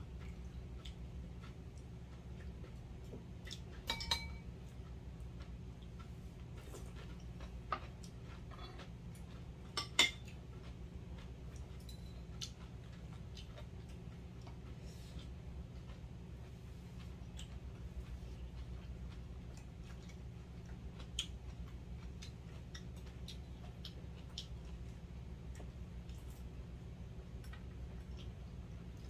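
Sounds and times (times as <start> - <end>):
steady low hum: 0.0 - 29.0
cutlery clinking on bowls: 3.8 - 4.5, 9.7 - 10.3.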